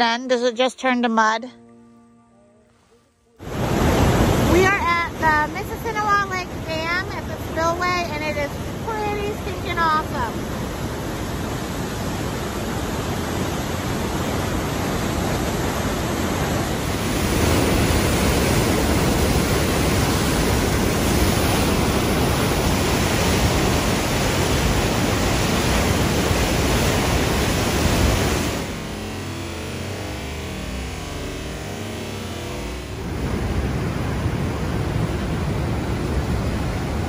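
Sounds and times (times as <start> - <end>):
water rushing down spillway: 11.4 - 29.1.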